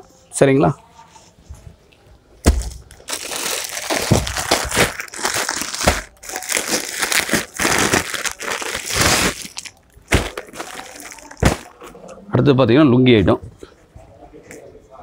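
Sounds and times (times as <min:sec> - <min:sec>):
plastic packaging crinkling: 0:02.5 - 0:12.0.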